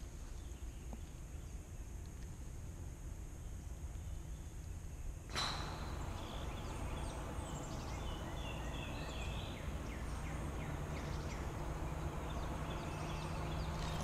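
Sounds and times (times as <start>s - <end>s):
birds chirping: 5.3s - 14.0s
low outdoor rumble: 5.3s - 14.0s.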